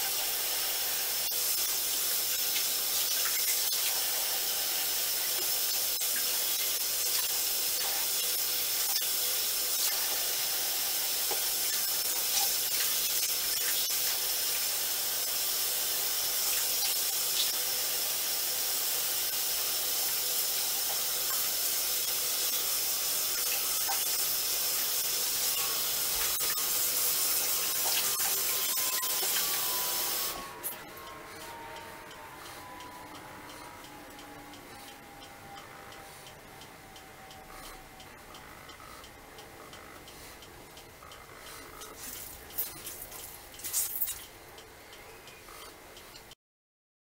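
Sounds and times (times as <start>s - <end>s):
water running from a faucet: 0.0s - 30.8s, 41.8s - 44.3s.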